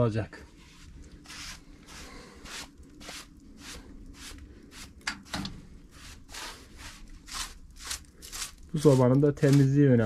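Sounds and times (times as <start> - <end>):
rough scraping of ash: 0.7 - 5.0, 5.9 - 10.0.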